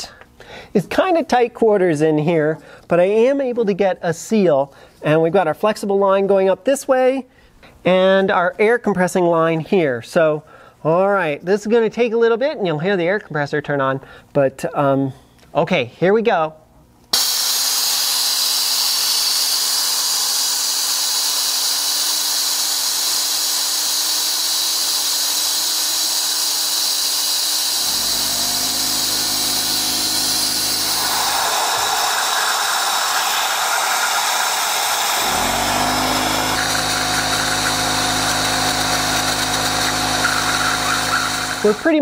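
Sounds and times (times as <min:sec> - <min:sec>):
air compressor motor humming: 0:17.2 - 0:42.0
vacuum filler hissing: 0:17.2 - 0:42.0.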